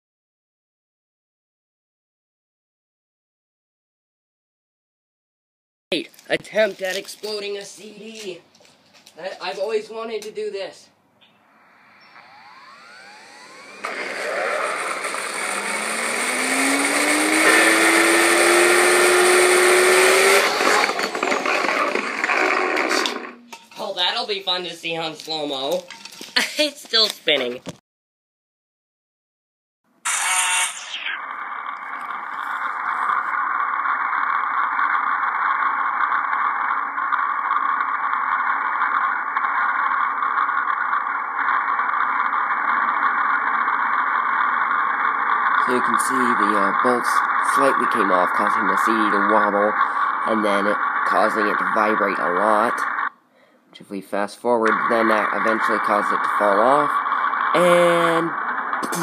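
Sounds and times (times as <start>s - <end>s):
vacuum motor whine: 11.6s - 23.3s.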